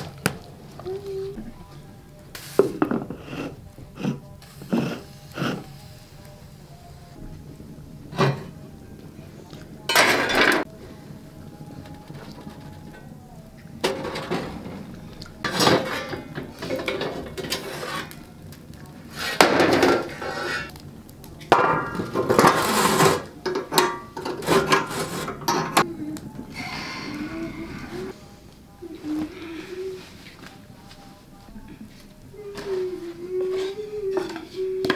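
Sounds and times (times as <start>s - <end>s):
metal tongs clanking on stove: 9.9s - 10.7s, 13.8s - 14.8s, 15.4s - 18.2s, 19.2s - 20.8s, 21.4s - 25.9s.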